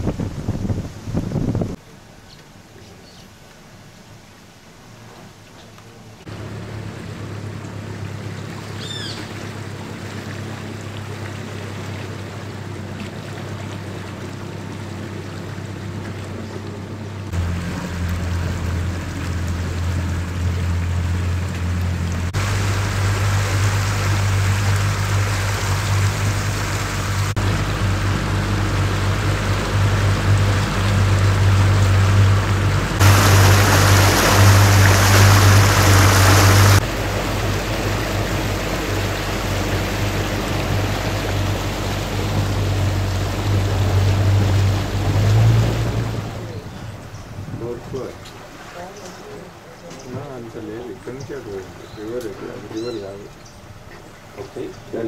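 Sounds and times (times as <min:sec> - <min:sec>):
water rushing past hull: 0:00.0 - 0:55.0
outboard motor running: 0:04.8 - 0:55.0.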